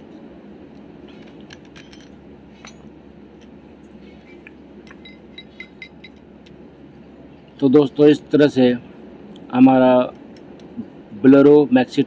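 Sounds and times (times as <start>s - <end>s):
steady low hum: 0.0s - 12.0s
metal parts clinking: 1.1s - 2.9s.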